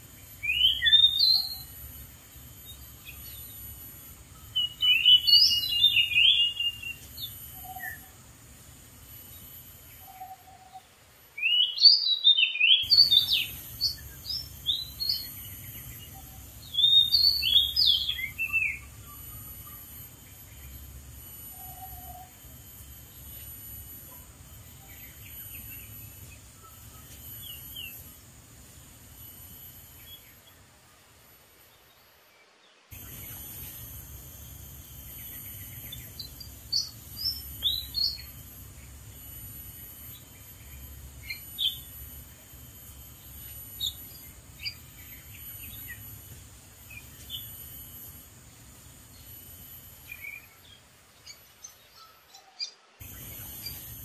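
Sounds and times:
steady outdoor hiss: 0:00.0 - 0:54.0
bird singing whistled notes: 0:00.2 - 0:01.9, 0:04.4 - 0:08.2, 0:09.3 - 0:23.6, 0:32.9 - 0:42.1, 0:49.1 - 0:54.0.

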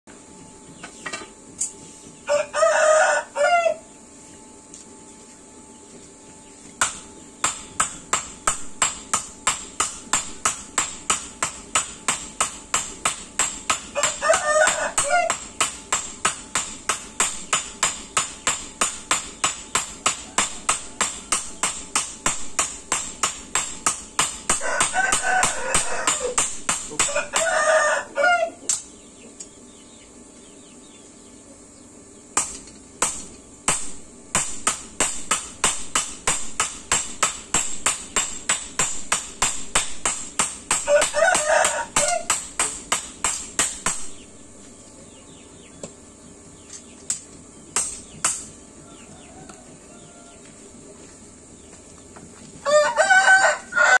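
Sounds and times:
rooster crowing: 0:02.2 - 0:03.9, 0:13.9 - 0:15.4, 0:20.2 - 0:21.6, 0:24.6 - 0:26.4, 0:27.0 - 0:28.6, 0:40.8 - 0:42.3, 0:48.8 - 0:50.6, 0:52.6 - 0:54.0
hammers striking hot steel on anvil: 0:06.8 - 0:27.7, 0:32.4 - 0:44.3, 0:47.1 - 0:48.6.

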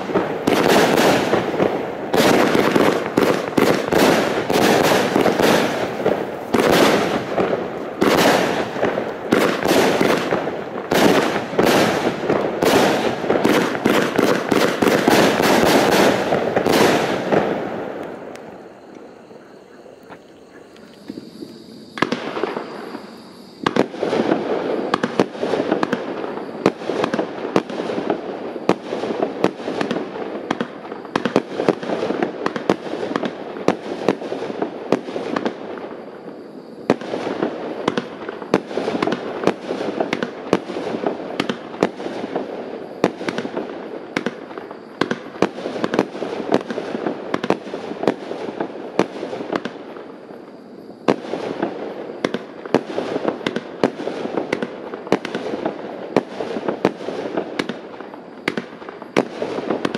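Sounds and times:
firework launches and bursts: 0:00.0 - 0:19.2, 0:21.0 - 0:59.9.

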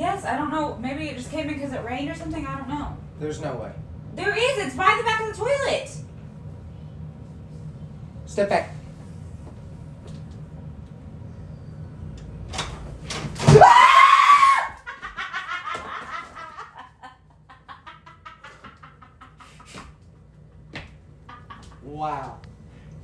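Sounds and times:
man shrieking in fright: 0:13.5 - 0:14.8
pulsing laughter: 0:14.8 - 0:19.8.

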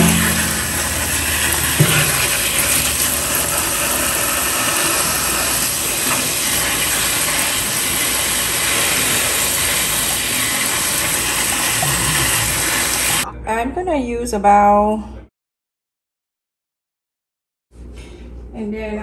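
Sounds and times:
faucet water splashing in sink: 0:00.0 - 0:13.3.

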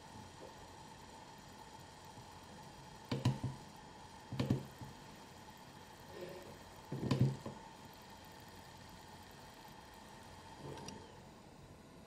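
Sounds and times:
hard drive seeking clicks: 0:01.8 - 0:05.2, 0:06.0 - 0:11.2.

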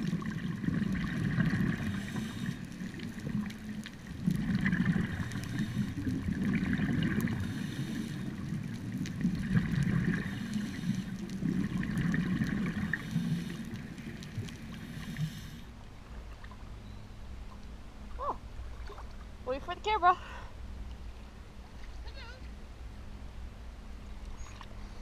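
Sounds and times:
diver's bubbles gurgling underwater: 0:00.0 - 0:15.5
low wash of water: 0:00.0 - 0:19.6.

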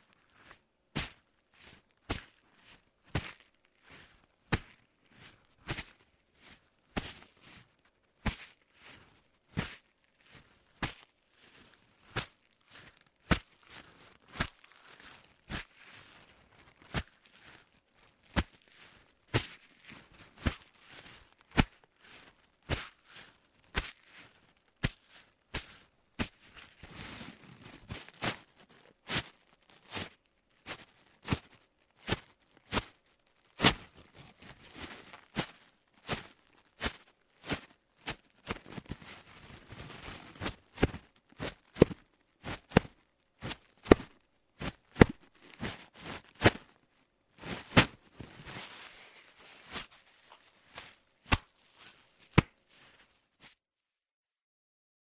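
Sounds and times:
sharp hits on soft sheet: 0:47.5 - 0:48.7.

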